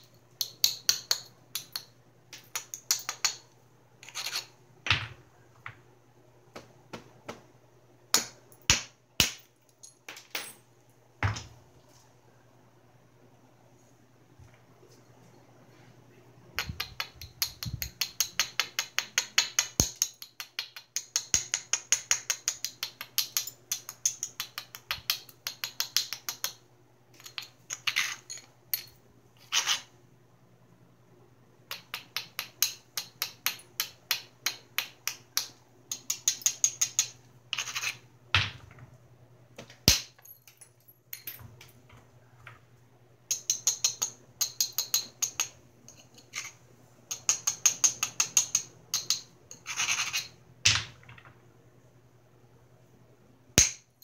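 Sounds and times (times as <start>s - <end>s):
tool scratching flint: 4.0s - 4.5s, 37.5s - 38.0s, 49.6s - 50.3s.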